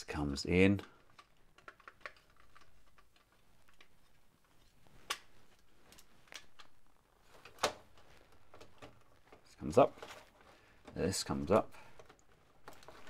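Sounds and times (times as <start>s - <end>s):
plastic toy parts clicking: 0.9s - 3.9s.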